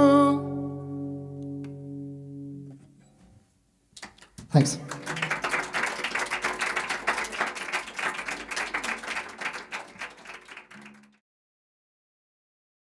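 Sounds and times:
acoustic guitar chord ringing: 0.0s - 3.4s
audience applauding: 4.0s - 11.2s.

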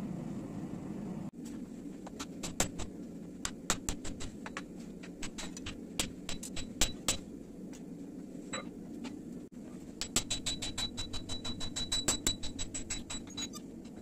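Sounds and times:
steady low hum: 0.0s - 14.0s
hammer striking metal on anvil: 5.2s - 7.2s, 10.0s - 13.5s.

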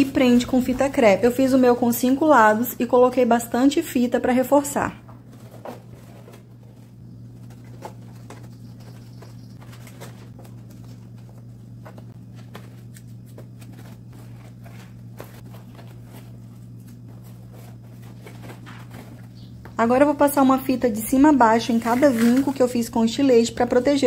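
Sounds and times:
steady low hum: 0.0s - 24.0s
cardboard clicks and rustles: 5.2s - 19.6s.

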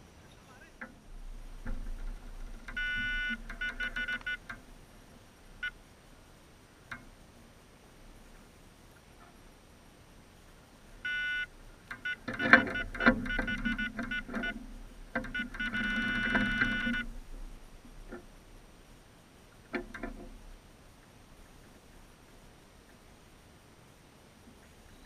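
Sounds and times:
sharp clicks: 1.6s - 4.6s
electronic bite alarm beeping: 2.7s - 4.4s, 11.0s - 14.6s, 15.3s - 17.1s.

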